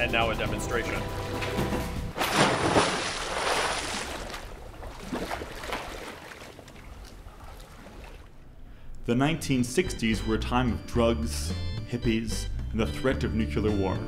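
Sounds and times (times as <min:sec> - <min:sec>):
object splashing into water: 0:01.4 - 0:08.3.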